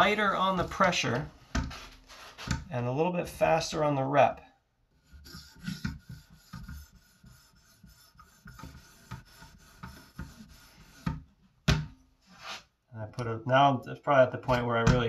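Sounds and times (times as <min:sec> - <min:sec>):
sharpening stone rasping on knife: 0:05.1 - 0:11.1.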